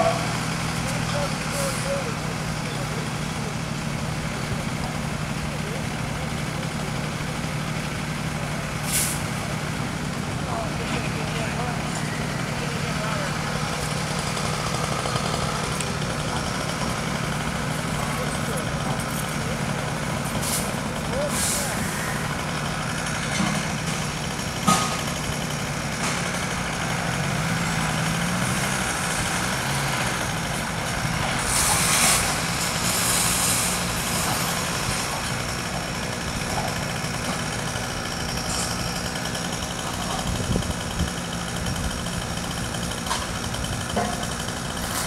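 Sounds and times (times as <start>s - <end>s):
diesel truck engine running: 0.0s - 45.0s
hiss of released air: 8.8s - 9.3s, 21.3s - 21.8s, 31.4s - 33.9s.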